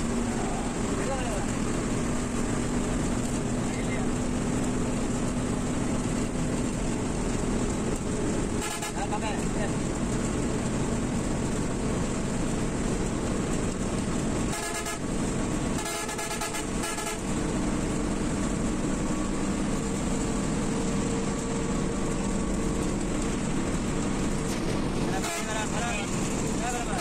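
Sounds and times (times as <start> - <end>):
bus engine and road noise: 0.0 - 27.0
vehicle horn blasts: 8.6 - 9.2, 14.5 - 15.2, 15.8 - 17.4, 25.2 - 25.7.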